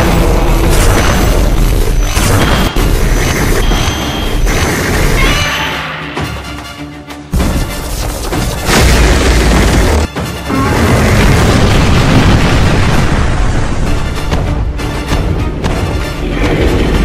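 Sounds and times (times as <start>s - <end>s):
heavy booms and explosions: 0.0s - 5.6s, 7.3s - 17.0s
dramatic soundtrack music: 0.0s - 17.0s.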